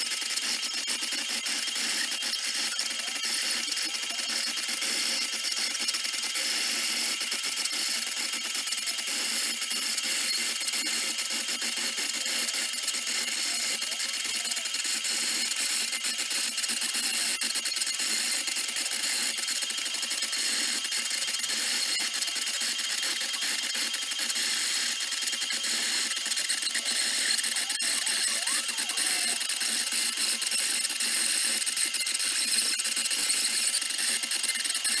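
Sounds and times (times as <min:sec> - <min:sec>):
bit scratching plastic: 0:10.0 - 0:35.0.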